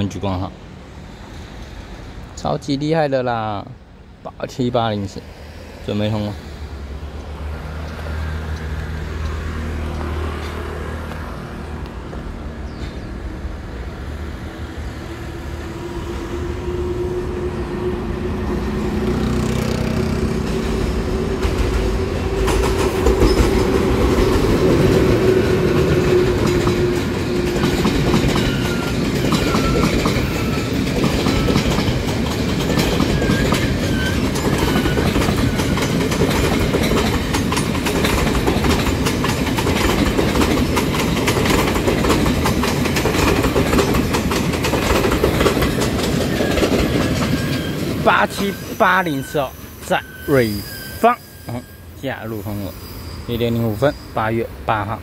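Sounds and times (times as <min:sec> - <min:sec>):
electric locomotive humming: 0:06.4 - 0:55.0
train wheels clicking on rail joints: 0:18.6 - 0:52.8.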